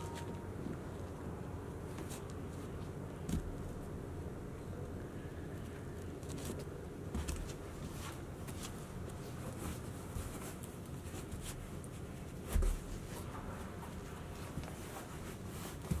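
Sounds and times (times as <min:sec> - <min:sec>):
boots rustling and tapping: 0:06.2 - 0:16.0.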